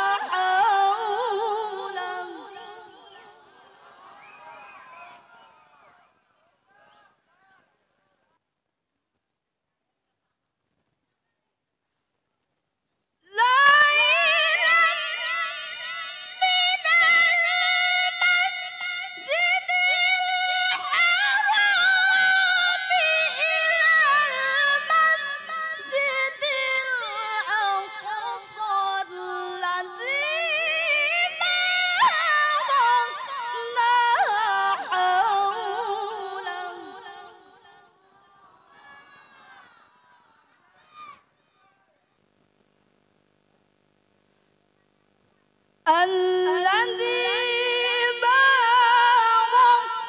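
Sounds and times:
woman reciting melodically: 0.0 - 3.8, 13.2 - 38.5, 45.9 - 50.0.

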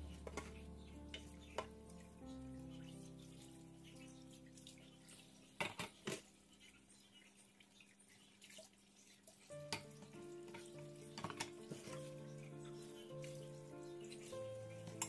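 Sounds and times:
soft background music: 0.0 - 6.6, 9.4 - 15.0
pots clattering in metal sink: 9.7 - 13.4.

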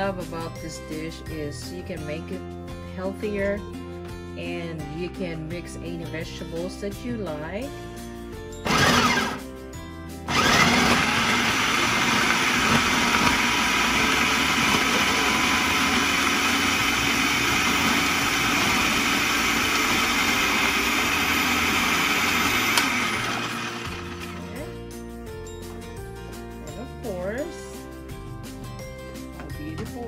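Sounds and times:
food processor running: 8.6 - 9.4, 10.3 - 24.8.

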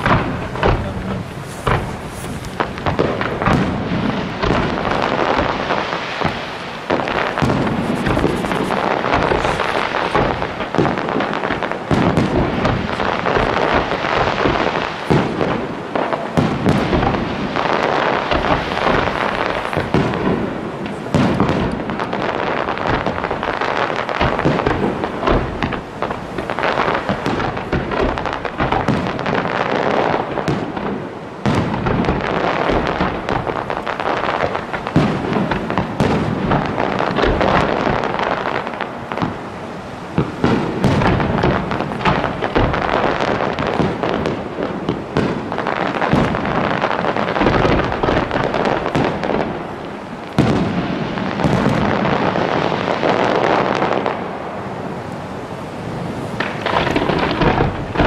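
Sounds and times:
fireworks bursting with loud bangs: 0.0 - 58.0.

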